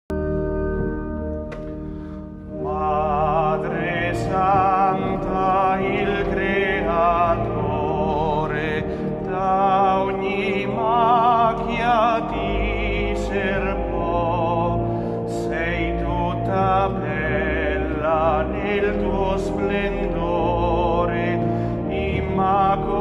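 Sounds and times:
sustained low chords: 0.1 - 23.0
person singing with vibrato: 2.6 - 23.0.

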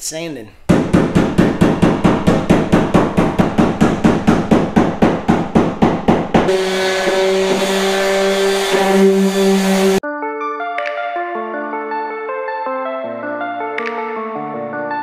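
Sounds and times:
hammer beating on metal hull: 0.7 - 10.0
orbital sander running: 5.4 - 10.0.

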